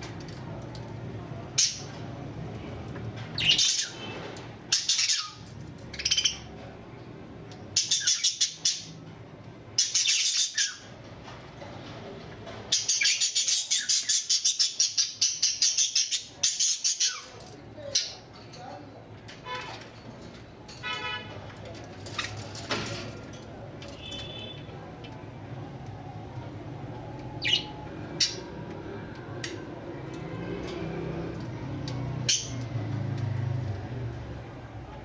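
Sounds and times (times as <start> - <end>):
budgerigars chirping: 4.7 - 5.4.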